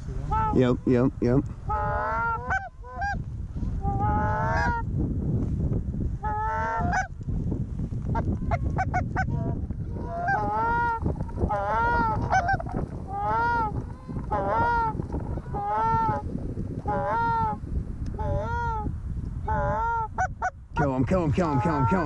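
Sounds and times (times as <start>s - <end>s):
goose honking and clucking: 0.2s - 0.6s, 1.7s - 3.2s, 3.8s - 4.8s, 6.2s - 7.1s, 8.1s - 16.2s, 16.8s - 17.6s, 18.2s - 18.8s, 19.5s - 20.5s.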